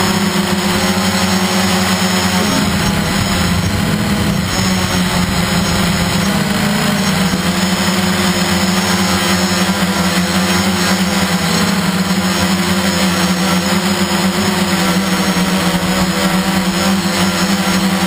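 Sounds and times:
model aircraft motors droning: 0:00.0 - 0:18.0
rushing air: 0:02.2 - 0:08.9.

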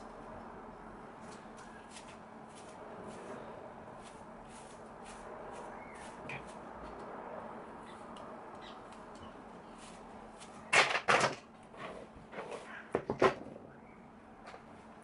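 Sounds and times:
hair rustling handled by hand: 0:01.2 - 0:07.1, 0:08.8 - 0:10.7.

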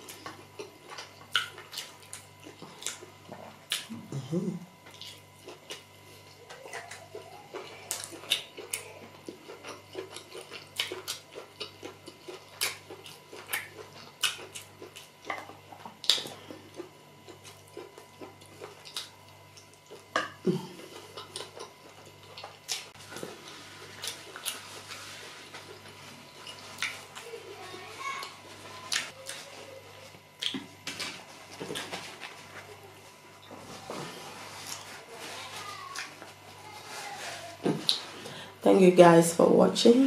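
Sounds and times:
wet chewing and lip-smacking: 0:00.0 - 0:04.1, 0:04.8 - 0:27.4, 0:28.2 - 0:32.7, 0:37.6 - 0:38.2.

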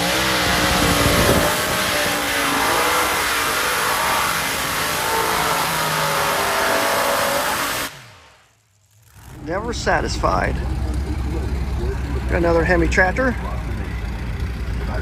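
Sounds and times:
tractor engines idling unevenly: 0:09.0 - 0:15.0.

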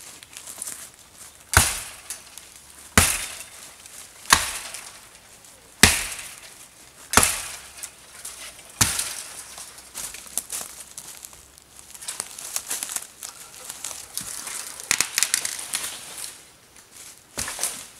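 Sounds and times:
axe chopping wood: 0:01.5 - 0:03.6, 0:04.2 - 0:05.1, 0:05.8 - 0:06.5, 0:07.1 - 0:08.0, 0:08.7 - 0:09.4, 0:17.4 - 0:17.8.

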